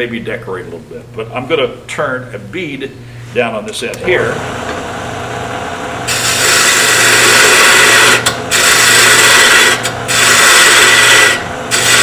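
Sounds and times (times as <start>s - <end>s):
lathe motor hum: 3.9s - 12.0s
lathe tool cutting wood: 4.0s - 12.0s.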